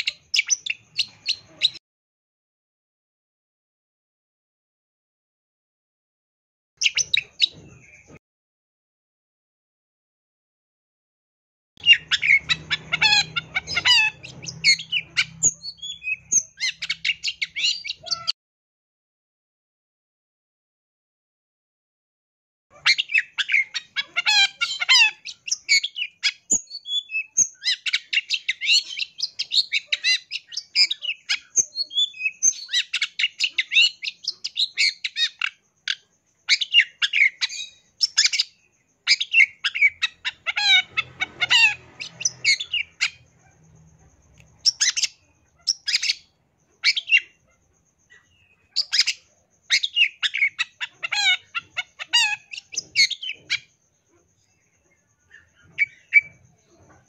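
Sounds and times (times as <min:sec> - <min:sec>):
bird chattering song: 0:00.0 - 0:01.8, 0:06.8 - 0:08.2, 0:11.8 - 0:18.4, 0:22.7 - 0:57.0.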